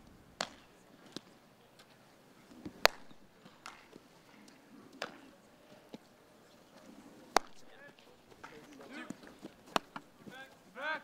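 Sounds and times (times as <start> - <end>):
ball smacking into leather glove: 0.4 - 1.3, 2.6 - 4.0, 7.3 - 10.4
bat cracking a baseball: 0.4 - 1.3, 2.5 - 4.0, 4.9 - 5.3, 7.3 - 10.2.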